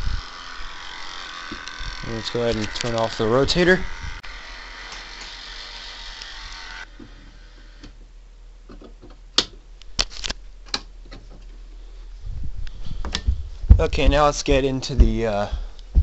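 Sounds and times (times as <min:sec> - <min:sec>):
siren motor grinding buzz: 0:00.0 - 0:07.8
sharp clicks: 0:02.5 - 0:03.2.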